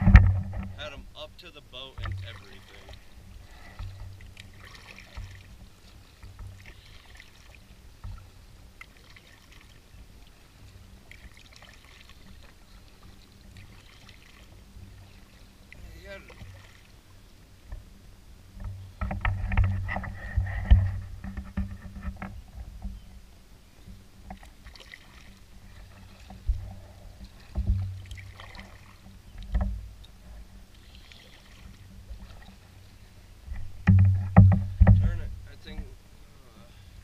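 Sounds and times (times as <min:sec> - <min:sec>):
thumps and knocks: 0:00.0 - 0:00.8, 0:18.6 - 0:23.0, 0:27.5 - 0:28.0, 0:29.4 - 0:29.9, 0:33.5 - 0:35.9
paddle blades splashing: 0:00.0 - 0:37.0.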